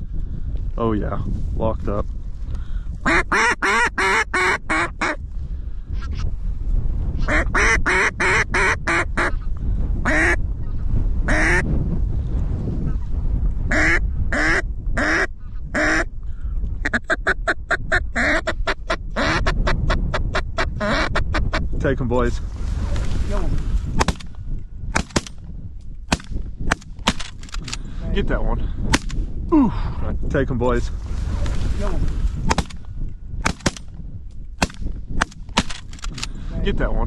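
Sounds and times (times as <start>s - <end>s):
steady low rumble: 0.0s - 37.0s
duck call quacks: 3.0s - 5.2s, 7.3s - 9.4s, 10.1s - 10.4s, 11.3s - 11.6s, 13.7s - 16.1s, 16.8s - 19.6s, 20.3s - 21.6s.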